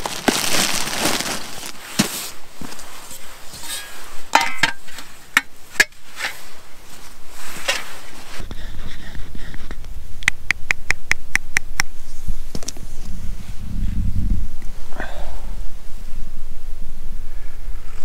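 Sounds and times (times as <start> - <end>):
low rumble: 12.1 - 18.0.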